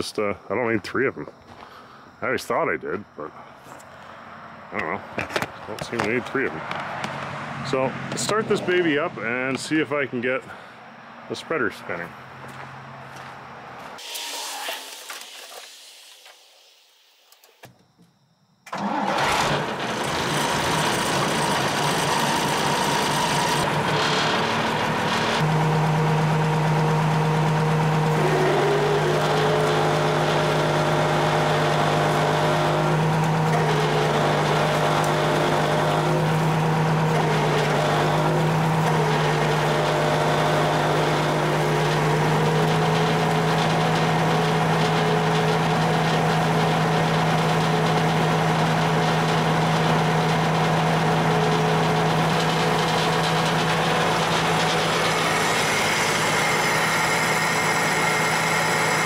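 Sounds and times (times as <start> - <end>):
higher whine: 0.0 - 45.8
diesel engine idling: 18.8 - 59.0.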